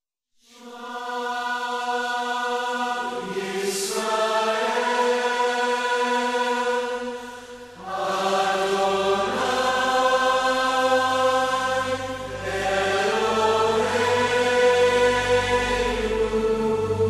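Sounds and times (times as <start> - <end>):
chanted voices: 0.6 - 17.0
sustained instrumental backing: 7.1 - 17.0
low bass: 11.1 - 17.0.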